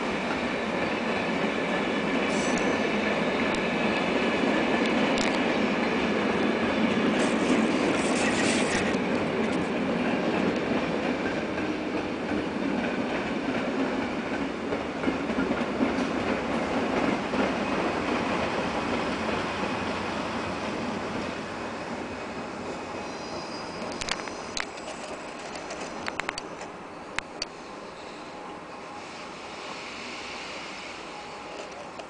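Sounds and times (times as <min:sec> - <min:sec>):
train wheels rumbling on rails: 0:00.0 - 0:32.0
faint wheel squeal: 0:23.0 - 0:24.5.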